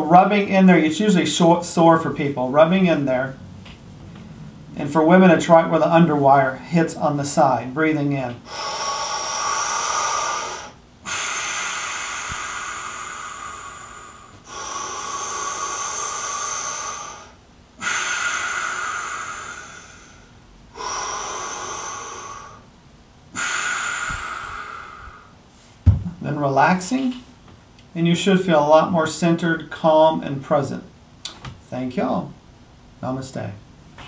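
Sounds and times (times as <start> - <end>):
man breathing deeply: 8.4 - 25.8.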